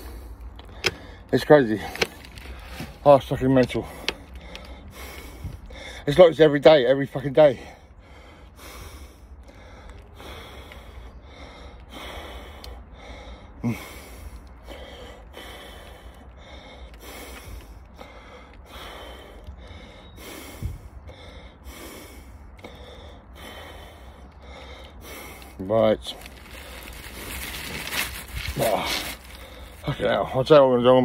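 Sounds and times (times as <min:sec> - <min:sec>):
man breathing heavily: 0:00.0 - 0:30.7.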